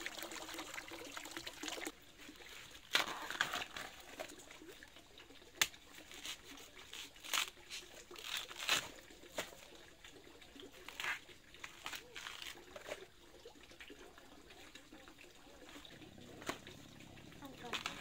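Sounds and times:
rustling and crinkling: 5.9 - 9.9, 10.7 - 13.1.

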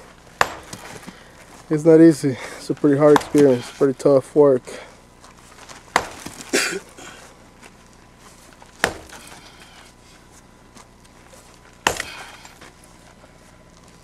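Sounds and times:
tool striking rock: 0.4 - 1.2, 3.0 - 3.8, 5.9 - 6.5, 8.8 - 9.6, 11.8 - 12.6.

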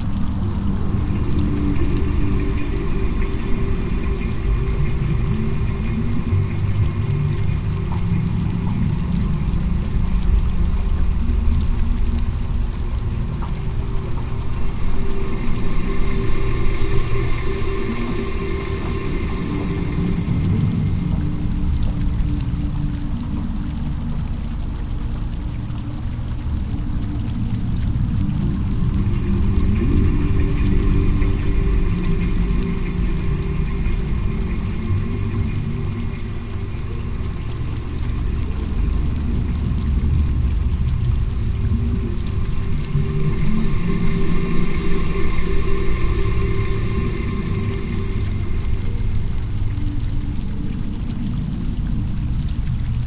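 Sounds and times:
faint steady tones: 0.0 - 53.0
running water pouring: 0.0 - 53.0.

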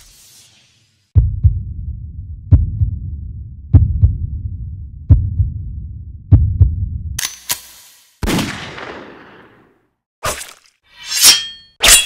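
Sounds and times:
heartbeat thumps: 1.2 - 7.2
low rumble: 1.2 - 7.2
gunshot: 8.2 - 9.6.

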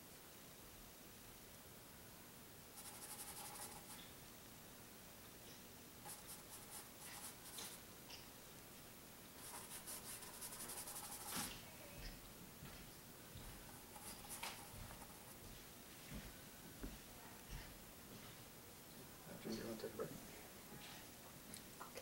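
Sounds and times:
faint room hush: 0.0 - 22.0
paintbrush scrubbing on canvas: 2.8 - 4.0, 6.0 - 7.8, 9.4 - 11.6, 13.6 - 15.6.

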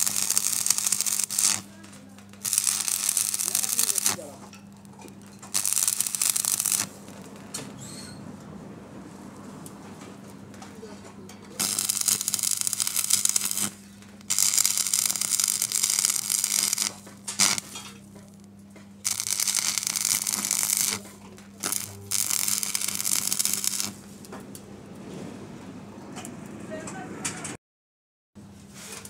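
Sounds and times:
welding arc crackling: 0.0 - 7.8, 11.5 - 24.3
low electrical hum: 0.0 - 26.8.

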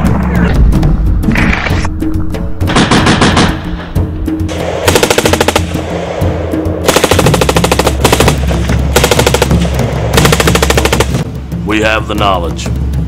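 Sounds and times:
background music: 0.0 - 13.0
machine gun automatic fire: 4.9 - 5.8, 6.9 - 8.4, 9.0 - 9.6, 10.2 - 11.2.

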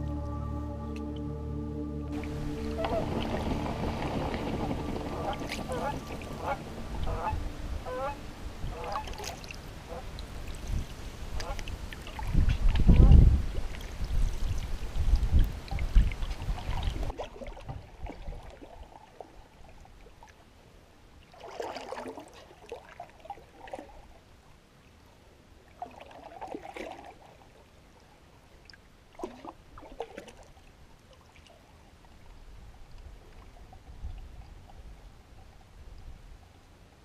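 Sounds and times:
canoe paddle splashing in water: 2.1 - 20.4, 21.2 - 24.2, 25.7 - 27.6, 29.1 - 31.8
water trickling off paddle: 2.1 - 20.6, 21.2 - 24.2, 25.7 - 36.5.

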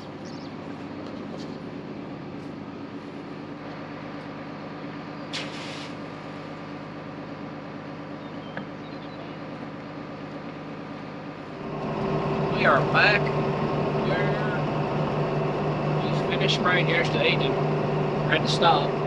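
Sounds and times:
brief hiss: 5.3 - 6.0
low mechanical hum: 6.0 - 19.0.

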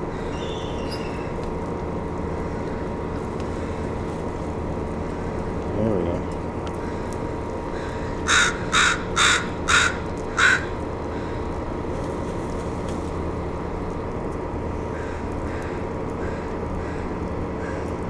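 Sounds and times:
steady low hum: 0.0 - 18.0
crow cawing: 6.8 - 11.4, 14.9 - 17.9.

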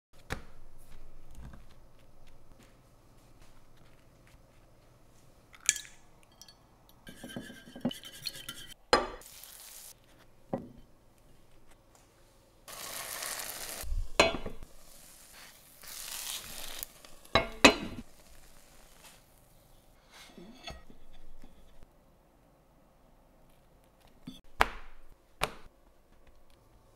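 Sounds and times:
metal spoons scraping and clinking: 5.6 - 8.8
glass lid clinking: 5.6 - 9.2, 14.2 - 14.6
bread sizzling in a pan: 9.0 - 10.0, 12.7 - 20.2.

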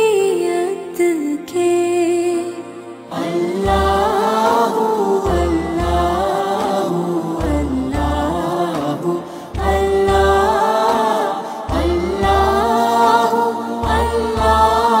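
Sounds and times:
sung vocal melody: 0.0 - 15.0
deep pulsing bass beat: 11.7 - 12.7, 13.8 - 14.9.

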